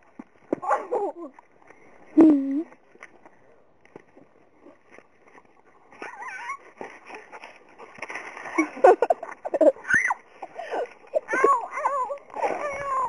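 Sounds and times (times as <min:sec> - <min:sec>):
dog whining: 0:06.0 - 0:06.7.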